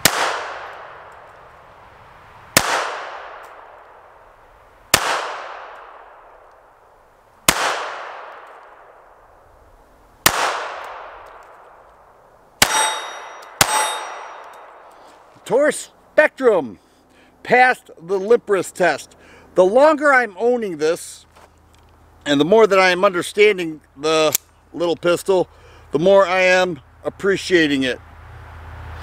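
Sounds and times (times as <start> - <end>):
pistol shots with echo: 0.0 - 1.3, 2.6 - 3.9, 4.9 - 6.3, 7.5 - 9.0, 10.2 - 11.6, 12.6 - 14.8
metallic ring: 12.7 - 15.0.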